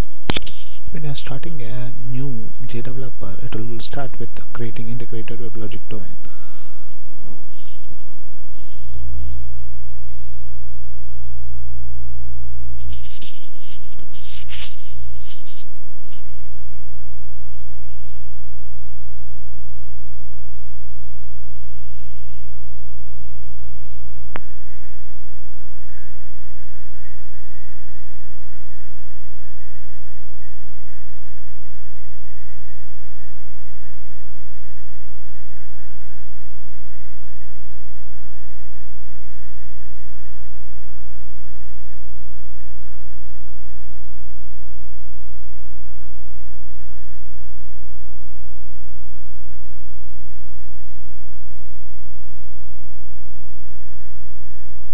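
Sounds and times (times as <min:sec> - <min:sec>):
recording hiss: 0:00.0 - 0:11.2, 0:12.7 - 0:18.5
low electrical hum: 0:00.0 - 0:54.9
sharp click: 0:00.2 - 0:00.8
rustle: 0:00.3 - 0:00.9.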